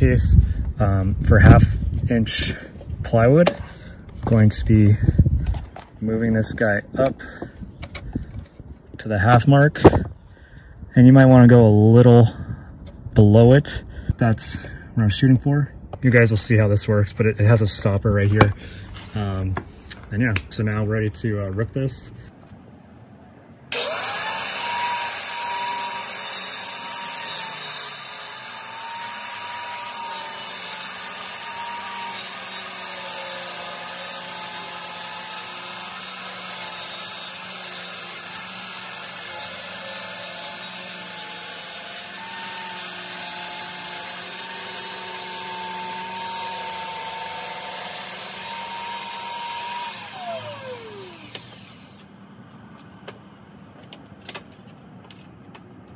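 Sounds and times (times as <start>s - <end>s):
saw blade cutting plywood: 23.7s - 52.1s
circular saw motor whine: 44.7s - 52.1s.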